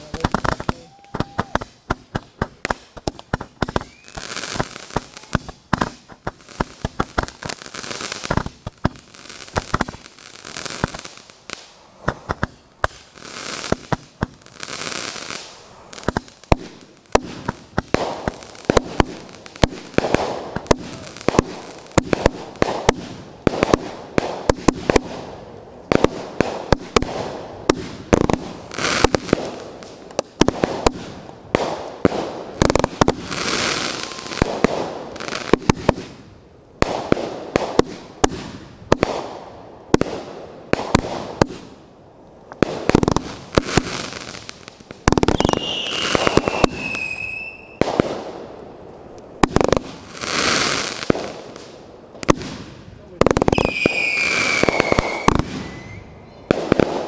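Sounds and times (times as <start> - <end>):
fireworks hissing: 0.0 - 36.2, 42.4 - 48.3, 49.0 - 57.0
fireworks bursting with bangs: 0.0 - 57.0.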